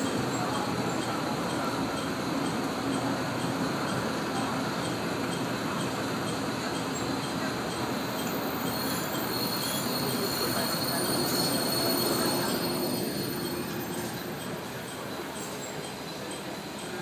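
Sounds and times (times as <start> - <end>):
train running rumble: 0.0 - 17.0
high squeal of wheels and brakes: 5.8 - 17.0.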